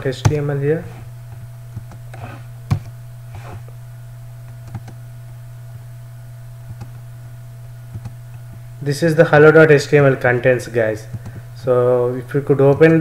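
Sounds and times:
steady low hum: 0.0 - 13.0
computer mouse clicks: 4.6 - 5.0, 6.7 - 7.0, 7.9 - 8.5, 11.1 - 11.4.

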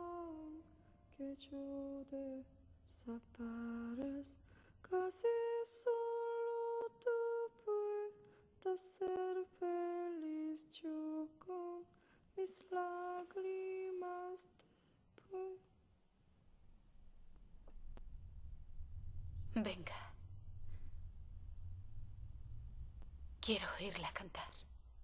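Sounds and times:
woman singing unaccompanied: 0.0 - 14.6, 15.2 - 15.7.

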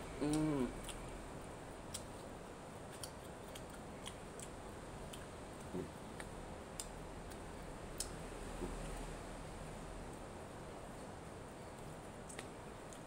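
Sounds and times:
chewing clicks and lip smacks: 0.2 - 1.1, 1.8 - 2.3, 2.9 - 8.2, 11.8 - 13.0.

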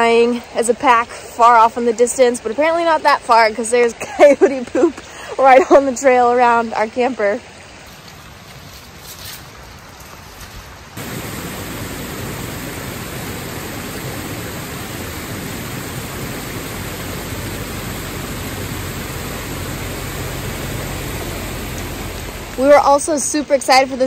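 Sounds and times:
river water rushing over rocks: 10.9 - 24.0.

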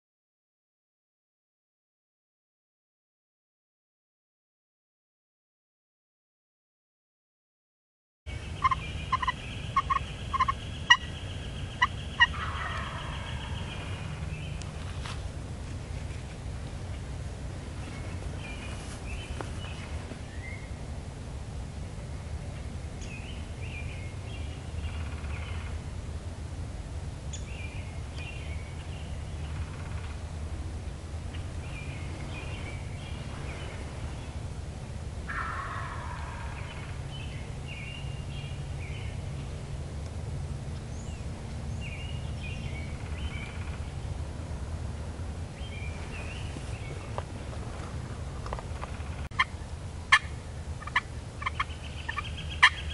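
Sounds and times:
low background noise: 8.3 - 52.9
turkey gobbling: 8.6 - 11.1, 11.8 - 14.0, 35.3 - 37.0, 49.4 - 52.9.

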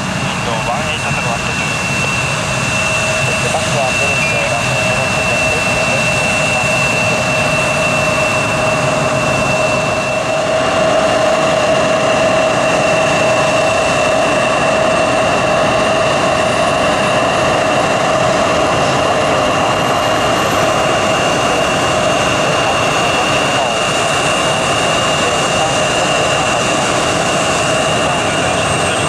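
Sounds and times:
jet engines whining: 0.0 - 29.0.

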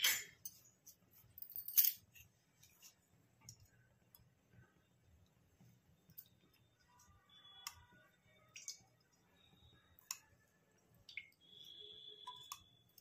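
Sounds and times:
kitchen utensils clinking: 0.0 - 0.6.

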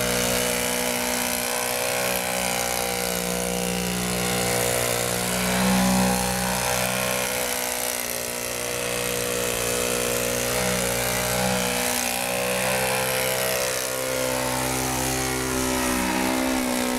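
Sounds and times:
model plane motor and propeller: 0.0 - 16.9.

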